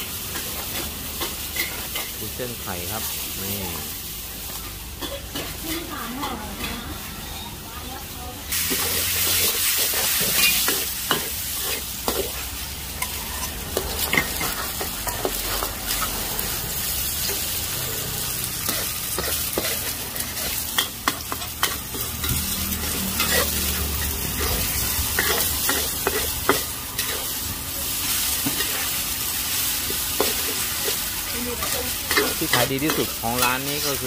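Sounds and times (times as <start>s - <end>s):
food sizzling in a wok: 0.0s - 34.0s
metal spatula scraping a pan: 8.5s - 12.4s, 13.0s - 16.2s.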